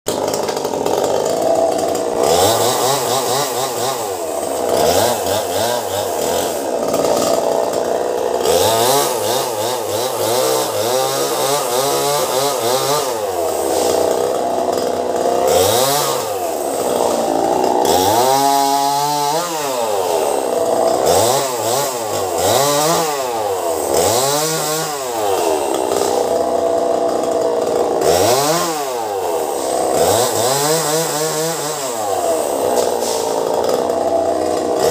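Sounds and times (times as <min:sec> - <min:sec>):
chainsaw revving: 0:00.0 - 0:34.9.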